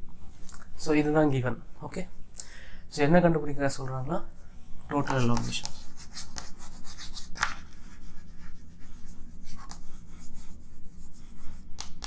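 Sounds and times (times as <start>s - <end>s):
chalk scratching on chalkboard: 5.0s - 12.0s.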